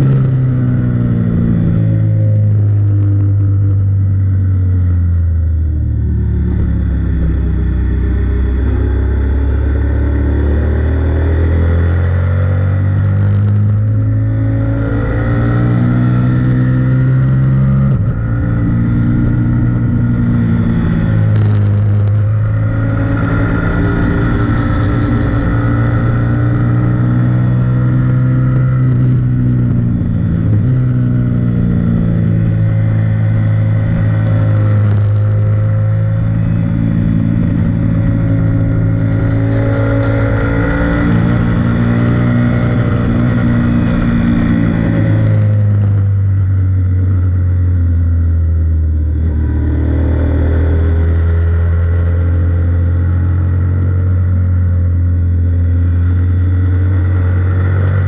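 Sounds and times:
motorcycle engine revving through gears: 0.0 - 58.0.

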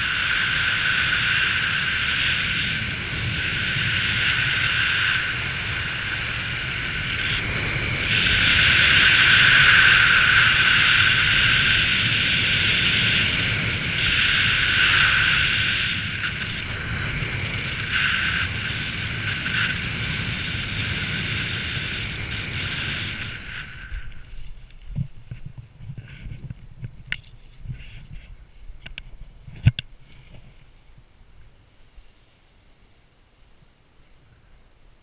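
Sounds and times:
small aircraft engine whining: 0.0 - 25.3
wind rush: 0.0 - 29.6.

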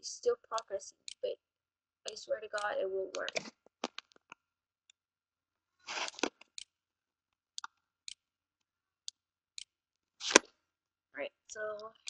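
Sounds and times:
computer mouse clicks: 2.1 - 4.3.

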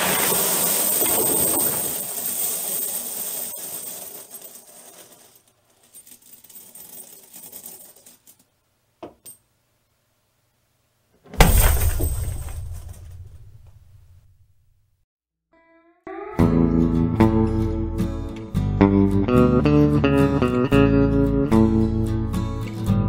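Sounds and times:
coins clinking onto a heap: 0.0 - 8.5
chest lid thudding shut: 11.3 - 14.1.

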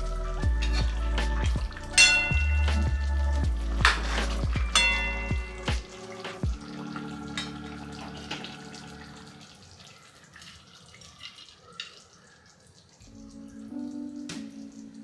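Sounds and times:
curry bubbles popping: 0.4 - 15.0.

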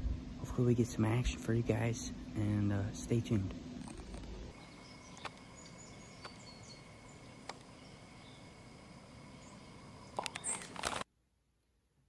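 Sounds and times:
steady high hum: 0.0 - 11.0
sharp clicks: 10.1 - 11.1.

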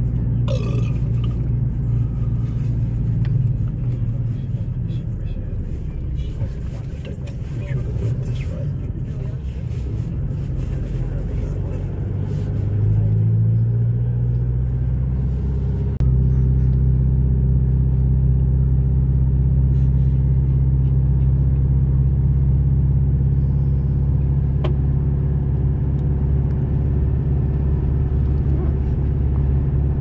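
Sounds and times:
car engine and tyre drone: 0.0 - 30.0.

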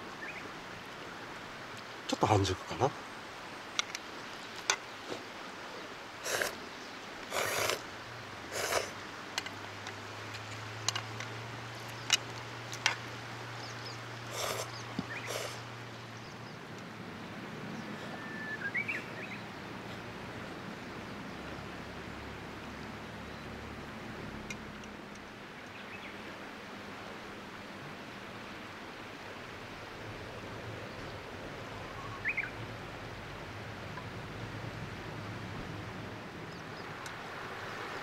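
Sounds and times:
river rushing: 0.0 - 38.0
slurping noodles: 6.2 - 6.6, 7.3 - 7.8, 8.5 - 9.0, 14.3 - 14.7, 15.3 - 15.6.

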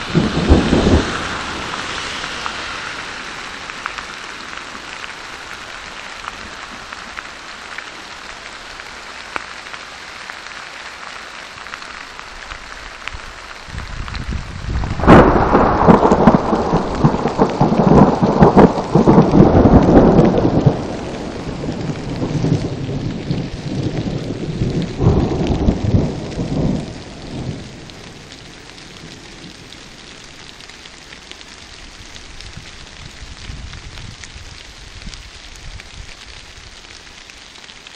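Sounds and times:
thunder rumbling: 0.0 - 4.4, 13.6 - 30.4
light rain hissing: 0.0 - 37.9.

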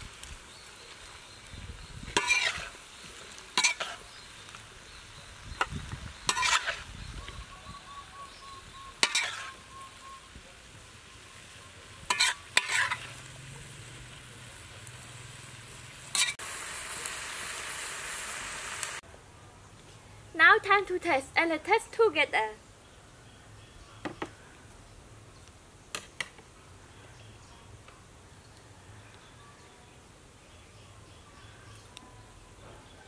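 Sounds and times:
vegetables sizzling in pan: 0.0 - 19.0
metal spatula scraping wok: 2.1 - 4.5, 5.6 - 6.9, 9.0 - 9.7, 11.9 - 13.3, 16.0 - 16.4.

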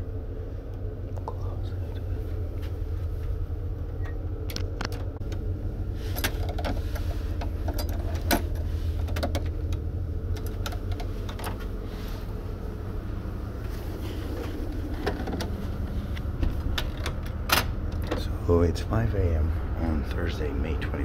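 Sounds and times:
ship machinery humming: 0.0 - 21.0
clicks and rustles of handling: 6.0 - 11.8, 13.6 - 18.3
door opening: 16.2 - 18.3.

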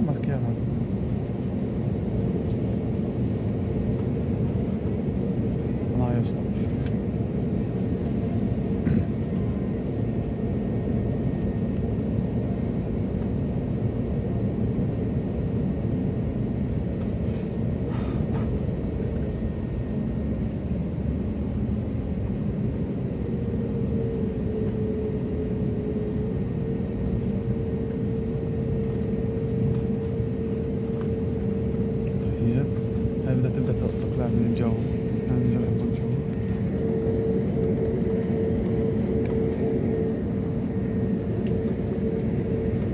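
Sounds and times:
airliner cabin engine rumble: 0.0 - 42.9
steady humming tone: 0.0 - 42.9.

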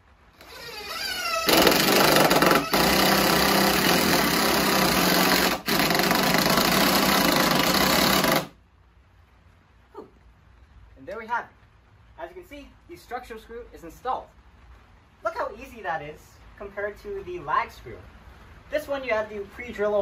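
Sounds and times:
cordless drill driving screw: 0.4 - 8.5.

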